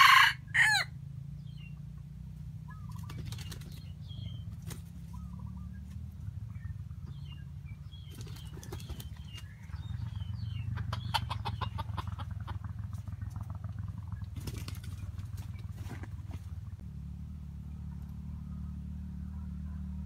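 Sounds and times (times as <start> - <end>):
steady low rumble: 0.4 - 20.0
small bird chirps: 2.6 - 12.1
rooster clucking softly: 10.7 - 12.7.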